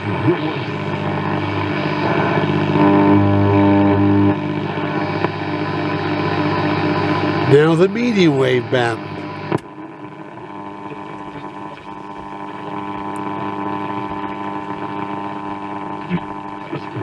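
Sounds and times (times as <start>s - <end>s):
radio static hiss: 0.0s - 17.0s
radio switch clicking: 12.2s - 14.2s.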